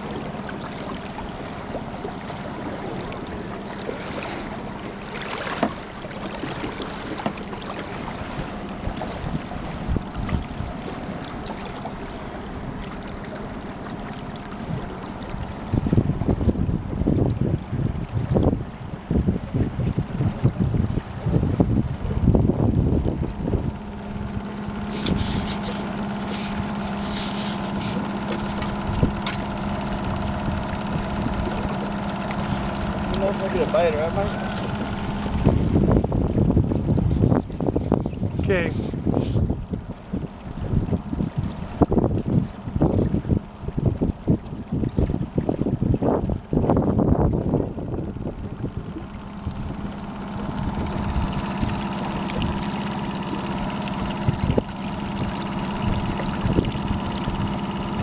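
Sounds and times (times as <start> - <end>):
outboard motor running: 0.0 - 58.0
water rushing along boat hull: 0.0 - 58.0
loud splash: 2.7 - 9.2.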